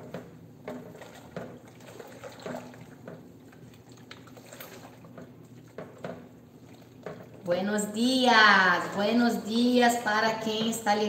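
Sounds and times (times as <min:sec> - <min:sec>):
spatula stirring thick filling: 0:00.0 - 0:07.9.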